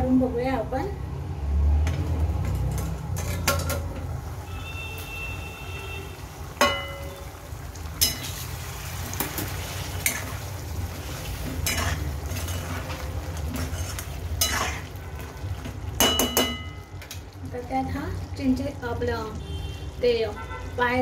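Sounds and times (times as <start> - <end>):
ladle stirring in a metal pan: 2.4 - 5.2, 7.8 - 16.9
ladle clinking against pan: 16.0 - 16.8.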